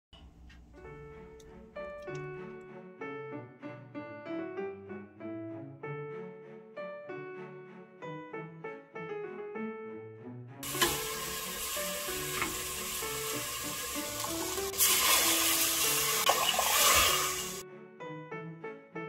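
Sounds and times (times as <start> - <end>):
beef sizzling in a pot: 10.6 - 17.6
metal ladle scraping a pot: 14.8 - 17.6.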